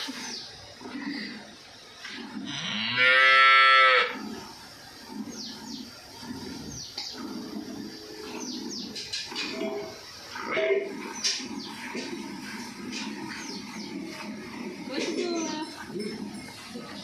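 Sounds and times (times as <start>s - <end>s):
cow mooing: 2.4s - 4.2s.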